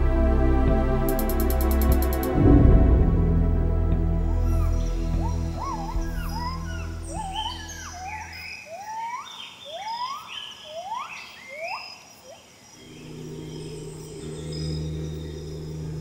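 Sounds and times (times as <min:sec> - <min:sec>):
low music drone: 0:00.0 - 0:08.4, 0:12.8 - 0:16.0
faint high jungle hum: 0:03.4 - 0:16.0
wild animal rising calls: 0:12.8 - 0:16.0.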